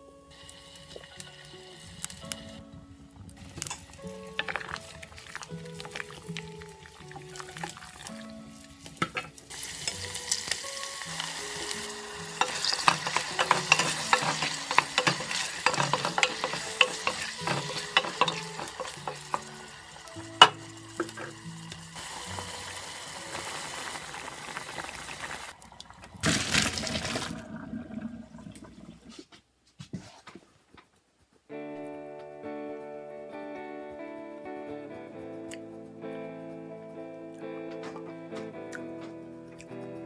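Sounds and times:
vegetables sizzling in oil: 0.3s - 2.6s, 3.3s - 25.6s
spoon knocking pan: 3.4s - 8.2s, 8.8s - 23.6s
wooden spoon scraping pan: 12.3s - 19.6s.

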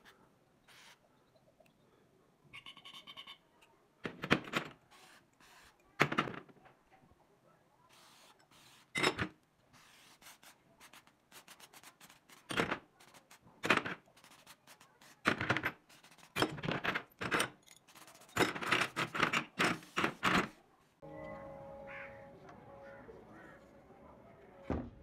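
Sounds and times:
aerosol spray hissing bursts: 9.8s - 12.1s.

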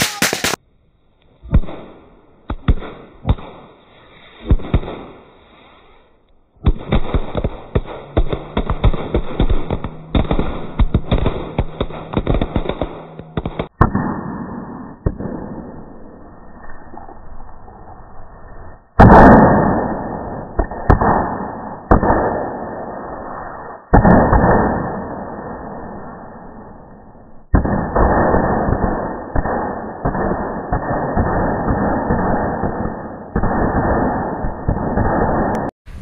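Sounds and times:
firecrackers banging: 0.0s - 0.6s, 1.5s - 5.9s, 6.6s - 16.1s, 27.4s - 36.0s
fizzing spray of sparks: 0.0s - 0.6s.

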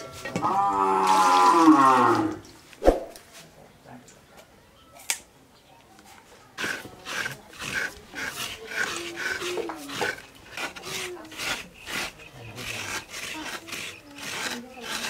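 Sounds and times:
rhythmic hand scraping: 6.6s - 15.0s.

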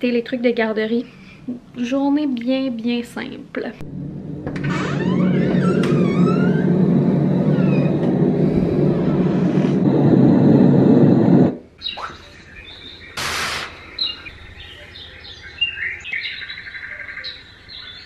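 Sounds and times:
loud rushing noise with hum: 3.8s - 11.8s
door squeaks: 4.4s - 9.6s.

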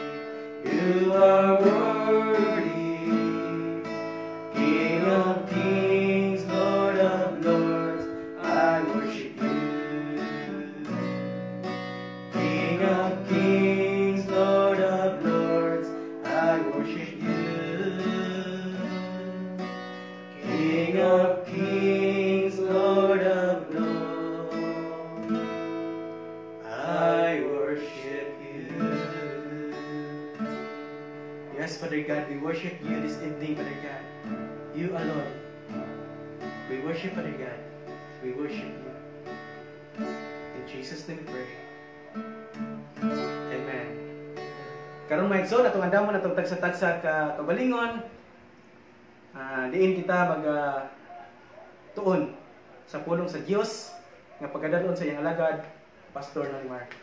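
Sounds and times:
acoustic guitar strumming: 0.0s - 47.7s
man singing: 0.6s - 11.4s, 12.3s - 19.7s, 20.3s - 26.0s, 26.6s - 30.6s, 31.5s - 34.1s, 34.7s - 35.4s.

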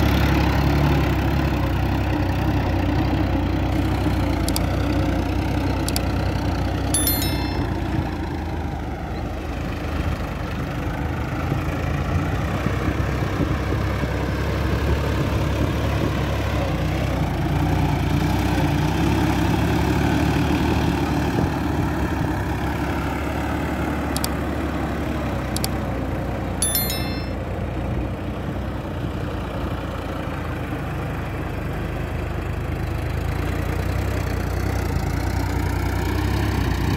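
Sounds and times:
tractor diesel engine under load: 8.2s - 26.3s.

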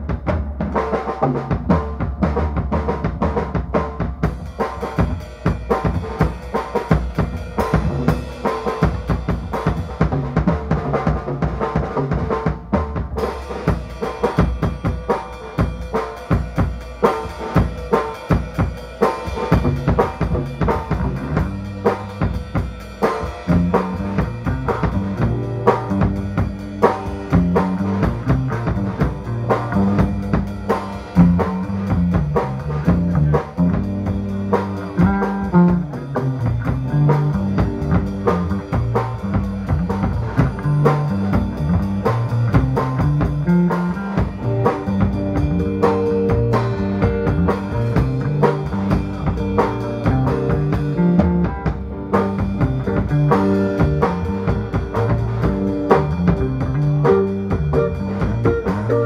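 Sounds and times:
bass line: 0.0s - 59.0s
drum kit hits: 0.0s - 59.0s
rock band playing: 0.0s - 59.0s
electric guitar: 13.2s - 59.0s.

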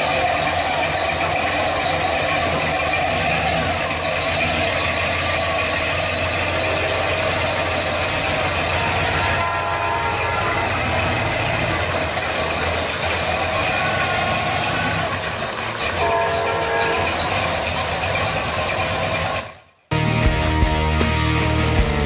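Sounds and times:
pickup truck engine idling: 0.0s - 19.7s.

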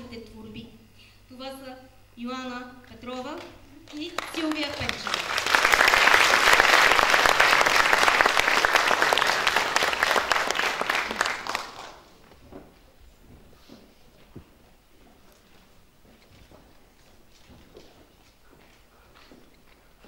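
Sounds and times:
audience applause: 3.9s - 12.1s.

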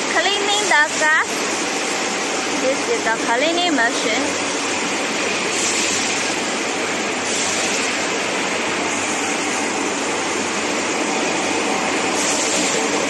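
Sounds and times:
cleaning machine running: 0.0s - 13.0s.

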